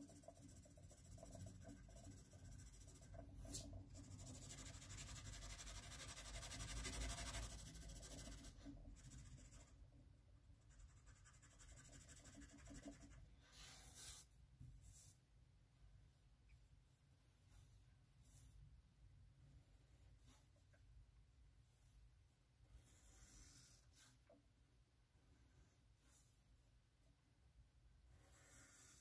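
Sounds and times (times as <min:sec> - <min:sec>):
pencil scratching on paper: 0:00.0 - 0:09.8, 0:10.6 - 0:15.2, 0:22.7 - 0:24.3, 0:28.1 - 0:29.0.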